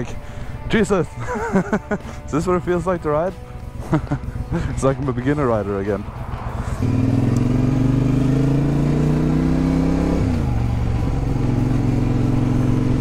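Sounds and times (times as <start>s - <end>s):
motorcycle engine pulling away: 6.1s - 13.0s.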